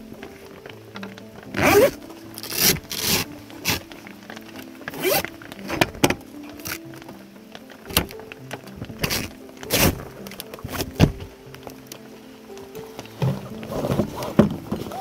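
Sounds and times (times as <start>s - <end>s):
background music: 0.0s - 15.0s
zipper rasping open: 1.5s - 3.8s, 4.9s - 5.8s.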